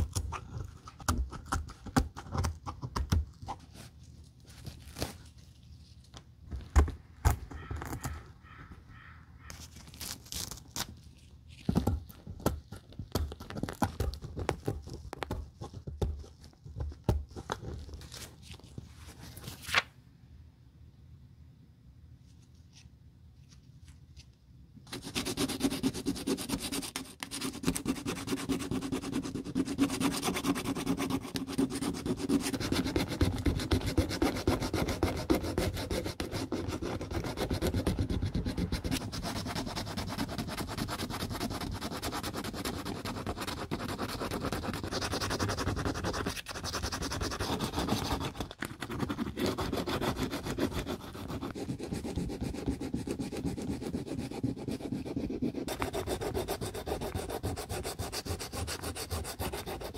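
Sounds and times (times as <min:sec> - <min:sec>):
sandpaper rasping on plastic: 0:24.9 - 0:59.9.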